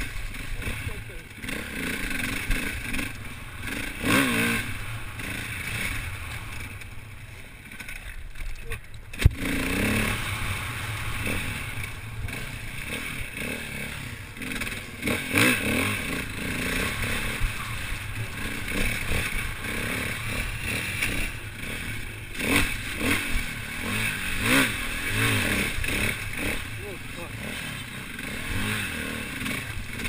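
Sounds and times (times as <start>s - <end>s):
motorcycle clattering over rough ground: 0.0s - 10.0s
motorcycle engine revving: 0.0s - 30.0s.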